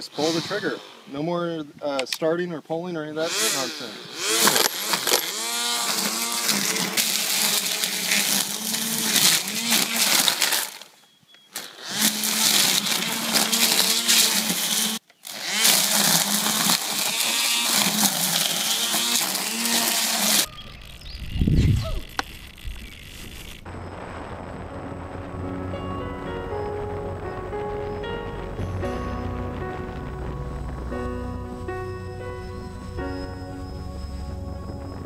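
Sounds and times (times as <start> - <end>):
string trimmer cutting grass: 0.0 - 1.2, 3.2 - 10.9, 11.5 - 23.7.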